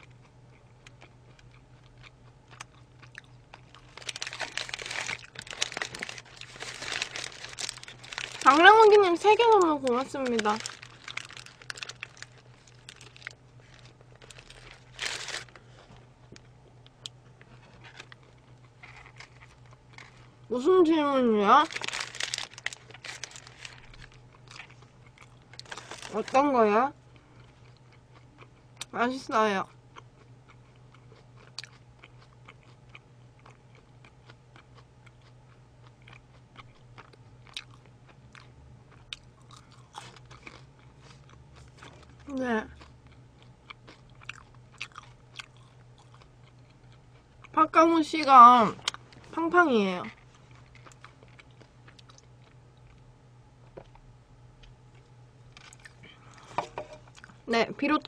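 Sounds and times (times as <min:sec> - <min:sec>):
soft chewing: 0:00.0 - 0:20.5, 0:21.6 - 0:28.9, 0:29.6 - 0:47.6, 0:50.1 - 0:57.5
paper wrapper crinkling: 0:03.6 - 0:15.8, 0:17.5 - 0:18.2, 0:21.6 - 0:24.7, 0:25.5 - 0:26.4.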